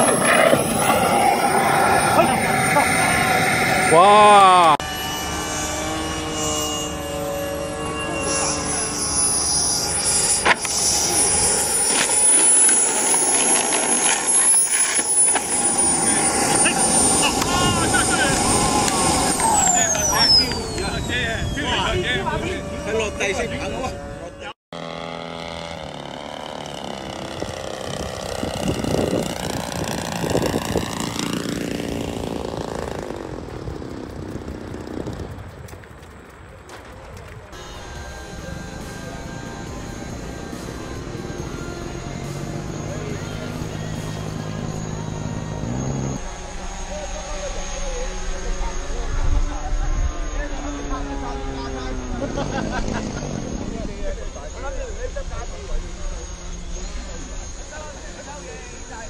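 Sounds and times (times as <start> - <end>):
model jet engine whine: 0.0 - 59.0.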